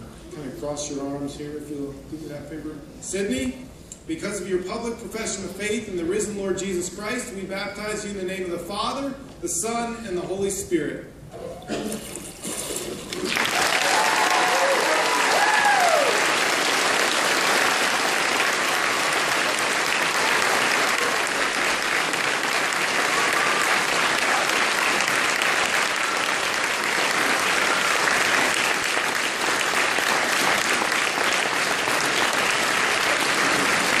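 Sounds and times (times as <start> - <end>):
congregation applauding: 12.4 - 34.0.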